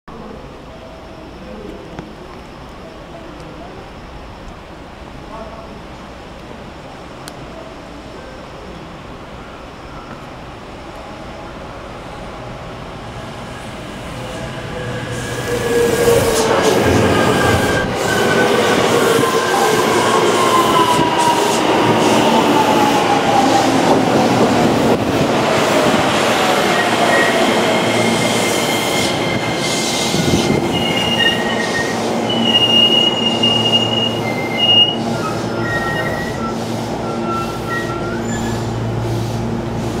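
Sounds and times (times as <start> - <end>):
high-pitched brake squeals: 26.7 - 38.8.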